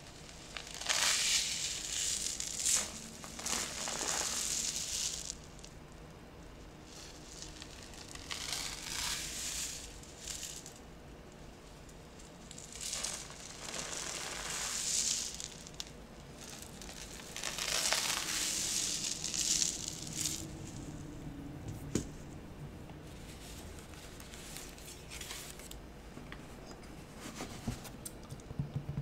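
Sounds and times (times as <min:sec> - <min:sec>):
rain stick rustling: 0:11.8 - 0:21.0.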